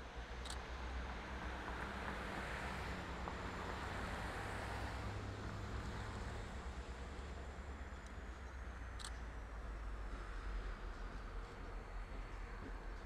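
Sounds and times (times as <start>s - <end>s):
diesel locomotive engine drone: 0.0s - 13.0s
wind: 0.0s - 13.0s.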